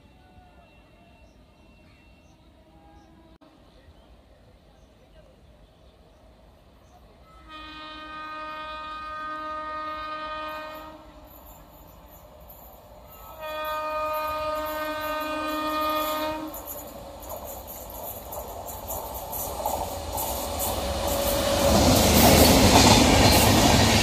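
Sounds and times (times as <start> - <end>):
train rumble: 0.0 - 24.0
train horn blasts: 7.2 - 11.6, 13.1 - 16.8.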